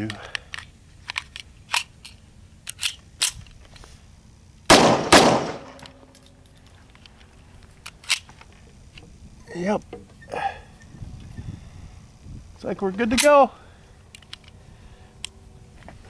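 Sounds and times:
pistol shots: 4.7 - 6.0.

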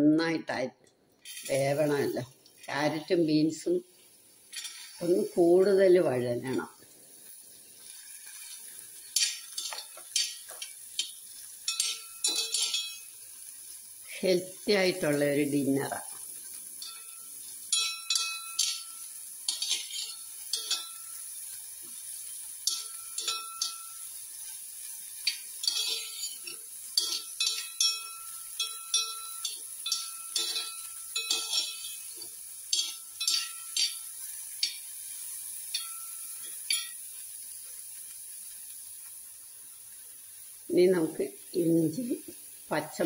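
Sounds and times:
spoon scraping and clinking metal pan: 4.5 - 5.1, 8.2 - 13.2, 15.9 - 37.2
pan ringing: 19.9 - 21.3, 22.6 - 24.1, 25.6 - 32.1, 35.7 - 37.0.

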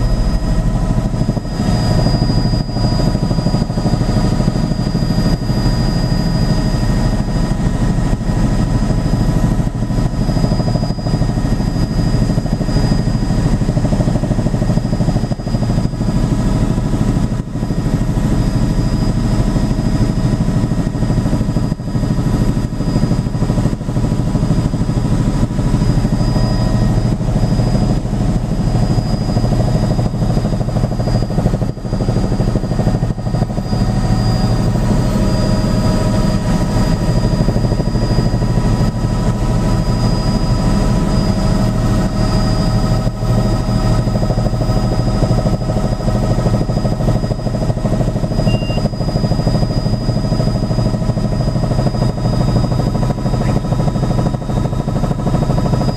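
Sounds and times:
thin high whine: 0.0 - 7.6, 24.8 - 44.1, 48.1 - 50.8
helicopter rotor and engine drone: 0.0 - 55.9.

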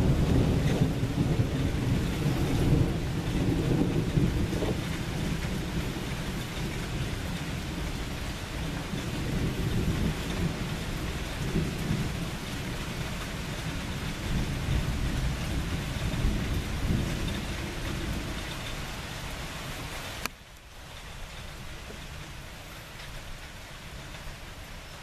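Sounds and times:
low thunder rumbling: 0.0 - 20.0
steady rain falling: 0.0 - 25.0.

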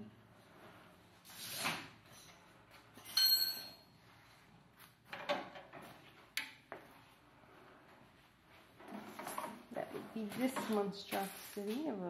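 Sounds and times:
ringing clink: 3.0 - 3.9
handling rustling and knocks: 7.9 - 12.0.

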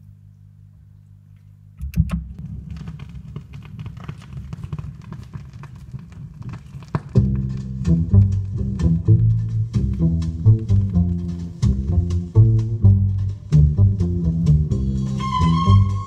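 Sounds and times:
vinyl surface crackle: 2.4 - 13.6
low hum: 7.1 - 16.0
music: 7.2 - 16.0.

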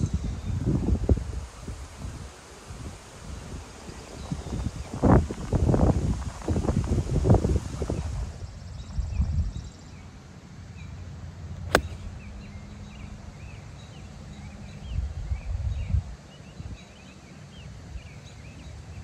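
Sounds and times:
wind on microphone: 0.0 - 9.6
golf club striking ball: 11.7 - 12.2.

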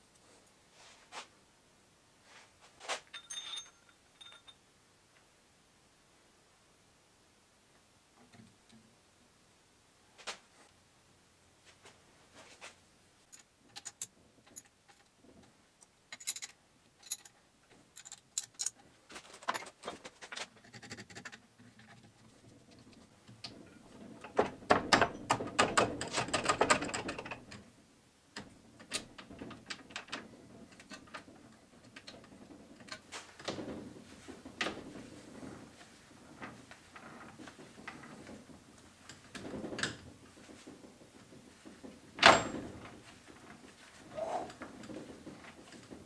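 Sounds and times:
small metal clicks and rattles: 3.1 - 4.6, 13.3 - 27.7, 28.4 - 46.0.

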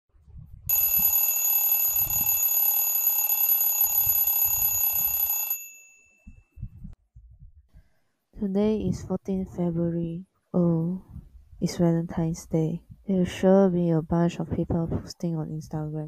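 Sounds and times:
phone alarm ringing: 0.7 - 6.3.

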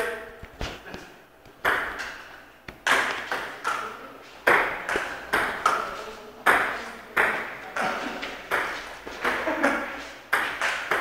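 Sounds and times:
table tennis ball clicks: 0.4 - 3.9.

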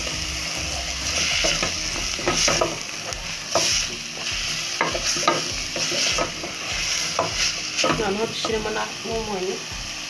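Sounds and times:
spinach sizzling in oil: 0.0 - 10.0
wooden spoon scraping a pot: 1.1 - 8.5.

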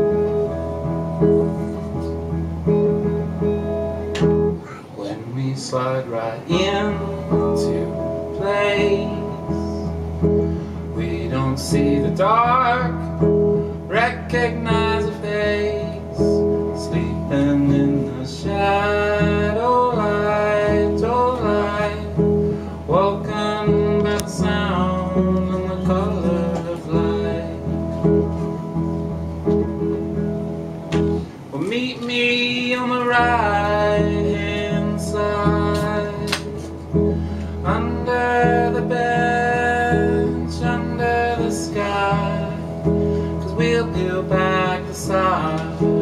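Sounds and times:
amplified picked guitar: 0.0 - 5.0, 6.4 - 46.0
man singing: 5.0 - 10.1, 10.9 - 28.4, 31.5 - 36.9, 37.6 - 46.0.

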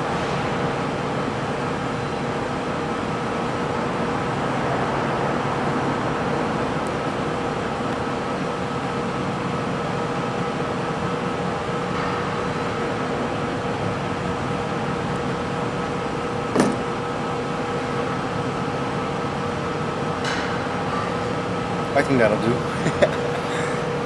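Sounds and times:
machine hum: 0.0 - 24.0.

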